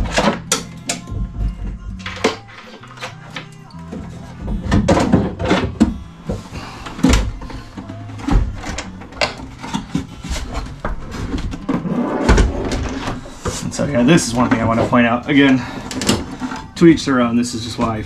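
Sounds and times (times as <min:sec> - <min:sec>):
box knocking and clunking: 0:03.9 - 0:16.8.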